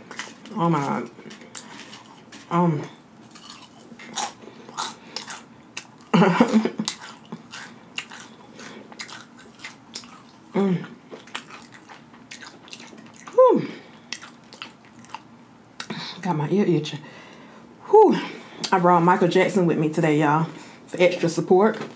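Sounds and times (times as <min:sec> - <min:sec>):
crunching chewing of chip: 0:00.0 - 0:15.9.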